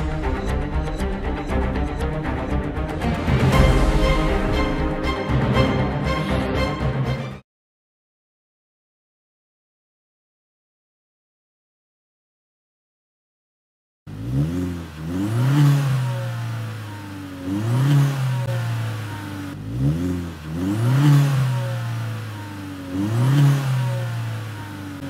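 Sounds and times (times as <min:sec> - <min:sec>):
car exhaust revving: 0:14.1 - 0:25.0.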